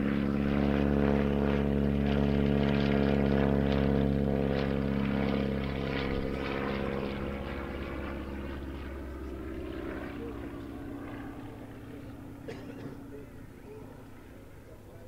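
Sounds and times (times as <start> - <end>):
propeller plane engine droning: 0.0 - 15.0.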